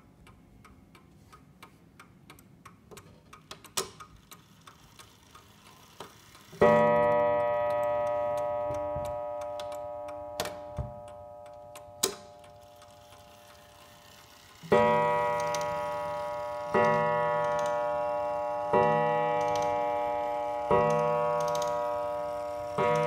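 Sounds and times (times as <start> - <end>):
clock striking on wire gong: 6.6 - 23.0.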